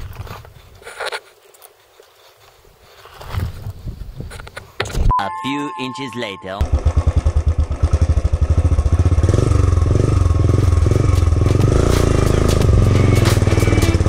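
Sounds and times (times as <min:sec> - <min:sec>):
motorcycle engine thumping: 0:06.6 - 0:14.0.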